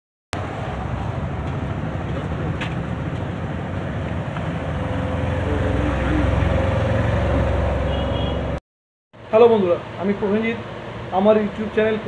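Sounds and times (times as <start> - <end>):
low engine rumble: 0.4 - 8.6
road traffic rumble: 0.4 - 8.6, 9.2 - 12.0.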